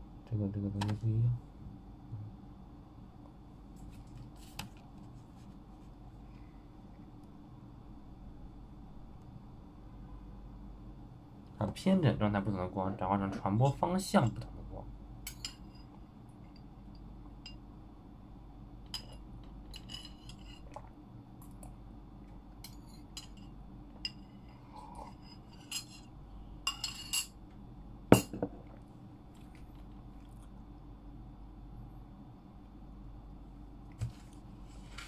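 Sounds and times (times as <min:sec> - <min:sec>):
spoon scraping ceramic bowl: 0:19.8 - 0:20.7, 0:24.1 - 0:26.1.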